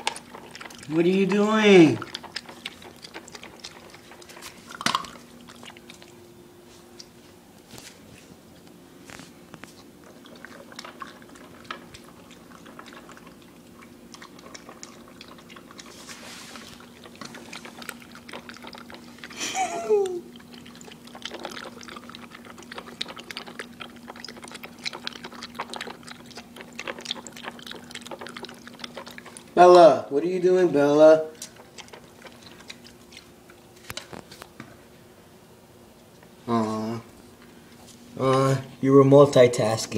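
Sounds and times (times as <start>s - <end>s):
kibble crunching: 0.0s - 6.2s, 8.6s - 19.4s, 20.3s - 34.7s
dog chewing and slurping: 0.0s - 34.6s
faint steady hum: 0.0s - 39.9s.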